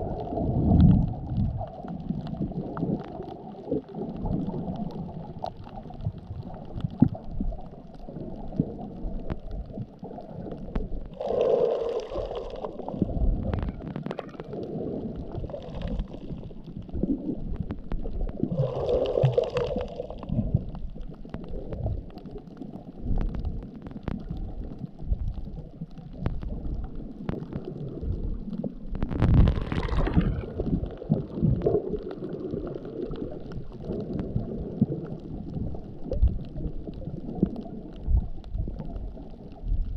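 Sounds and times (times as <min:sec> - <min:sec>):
underwater rumble: 0:00.0 - 0:39.9
rushing water swells: 0:10.0 - 0:22.8, 0:26.4 - 0:39.6.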